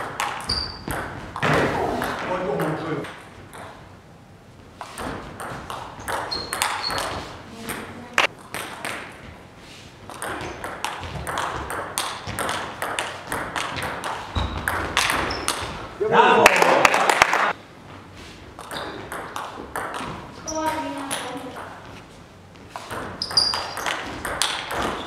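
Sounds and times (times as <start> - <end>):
ball bouncing on table: 0.2 - 3.8, 4.9 - 9.2, 10.1 - 15.8, 18.6 - 21.9, 22.8 - 25.0
table tennis ball clicks: 22.8 - 25.0.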